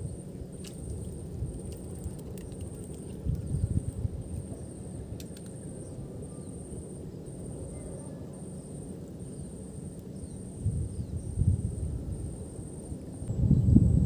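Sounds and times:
wind rumble on microphone: 0.0s - 5.2s, 10.2s - 14.0s
high insect trill: 0.0s - 14.0s.

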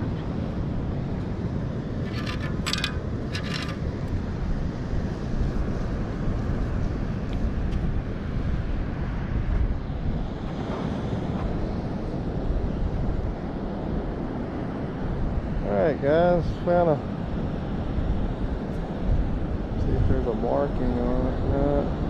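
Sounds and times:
wind noise on microphone: 0.0s - 22.0s
metallic rattling of sand scoop: 2.0s - 3.9s.

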